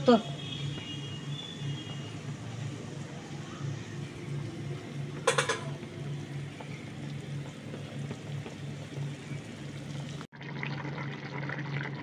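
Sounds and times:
broth boiling and bubbling: 0.0 - 12.0.

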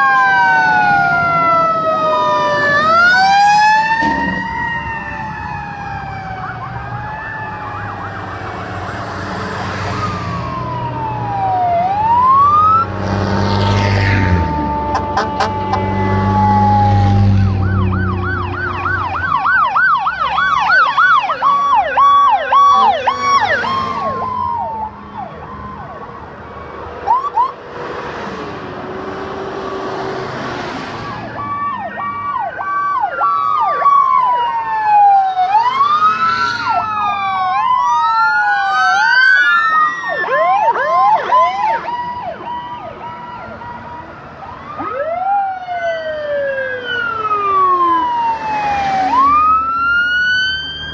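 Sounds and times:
fire engine rumbling: 0.0 - 30.4
emergency vehicle sirens: 0.0 - 50.9.

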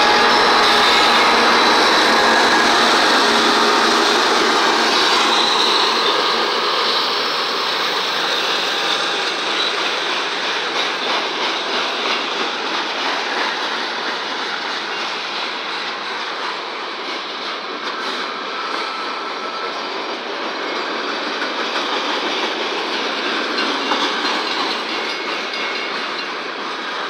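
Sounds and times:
freight cars rolling: 0.0 - 14.4
diesel locomotive engines: 0.0 - 27.0.

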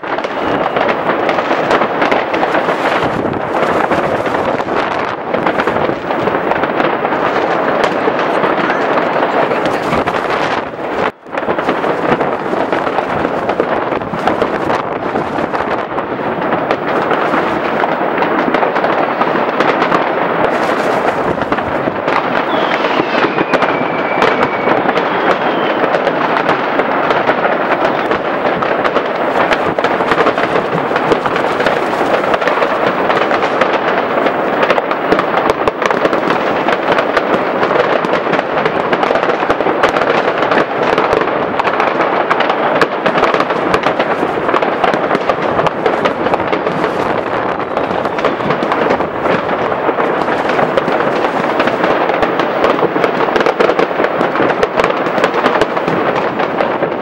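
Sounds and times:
firework whistle gliding down: 0.0 - 1.1, 22.1 - 26.4
fireworks crackling and banging: 0.0 - 57.0.

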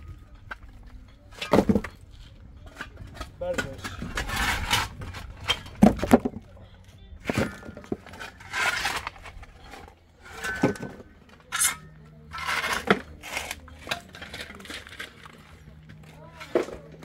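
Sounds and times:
handling knocks and clinks: 0.0 - 17.0.

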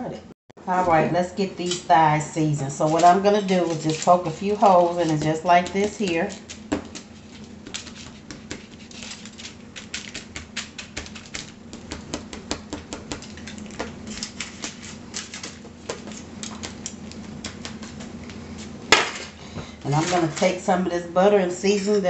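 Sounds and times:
knife tapping pan through meat: 9.8 - 14.0.

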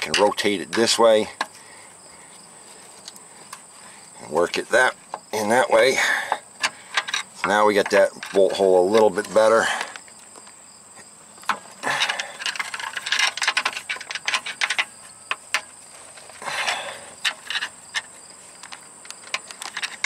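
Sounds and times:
metal clicks and knocks: 0.0 - 1.5, 6.3 - 10.0, 11.4 - 16.4, 17.2 - 20.0.

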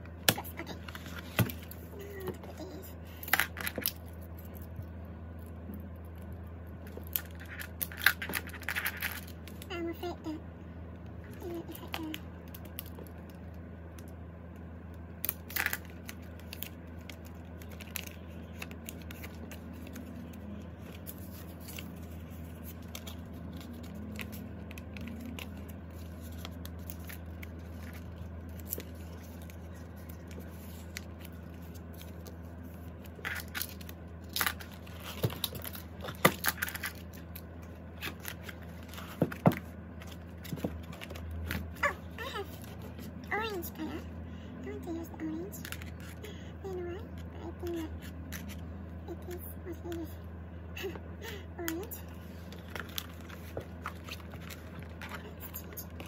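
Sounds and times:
steady low hum: 0.0 - 56.0
plastic sleeves rustling: 52.1 - 56.0.

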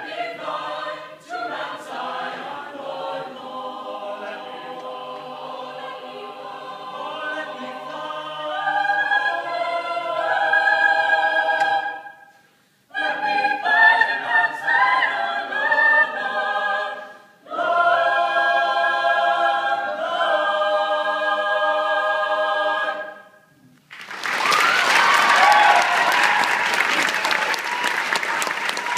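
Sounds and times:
choir singing a cappella: 0.0 - 23.7
audience applause: 23.9 - 28.9.

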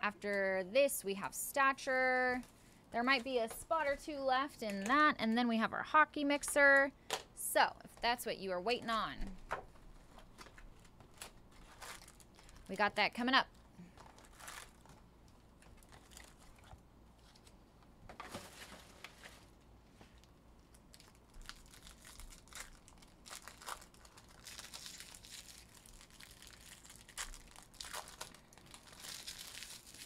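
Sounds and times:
wrappers crinkling and tearing: 10.0 - 17.6, 20.6 - 30.0.

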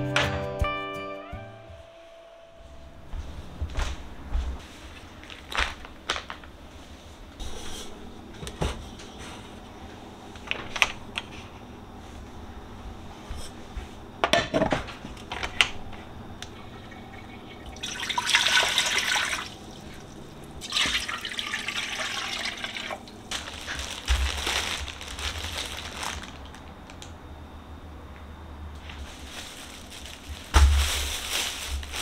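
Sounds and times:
water pouring into a pot: 17.0 - 23.1.

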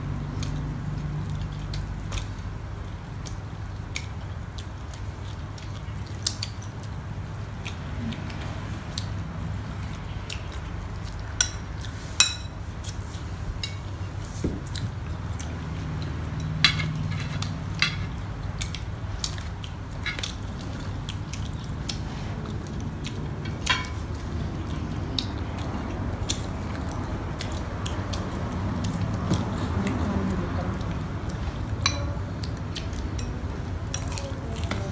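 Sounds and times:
steady low hum: 0.0 - 34.9
cutlery clinking on plates: 16.4 - 18.1, 31.8 - 32.1.

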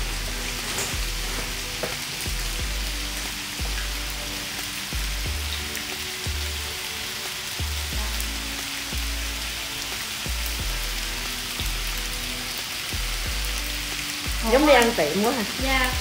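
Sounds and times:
background music with low notes: 0.0 - 16.0
meat and vegetables sizzling on griddle: 0.0 - 16.0.

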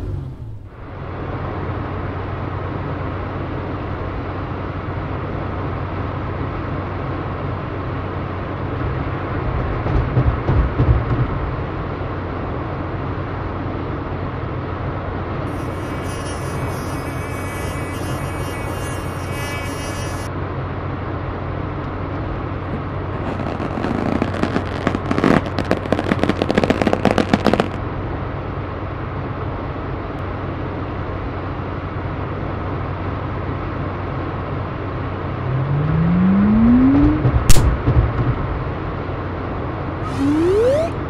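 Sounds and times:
car engine drone: 0.0 - 9.5, 15.2 - 20.5, 32.4 - 41.0
rapid crackling: 15.5 - 20.3, 23.2 - 27.8
rising whistle-like glide: 35.3 - 37.3, 40.0 - 41.0.

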